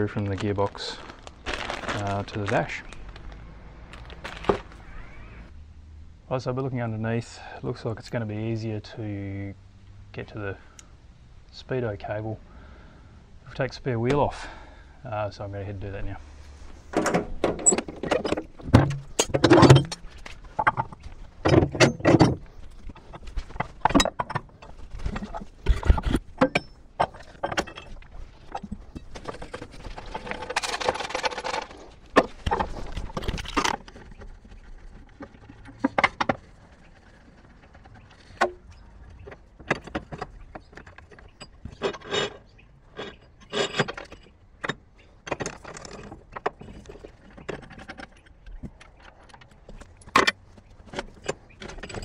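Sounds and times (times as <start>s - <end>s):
dense metal rattling: 16.8s - 38.7s
metal tools clinking on steel: 17.0s - 29.4s.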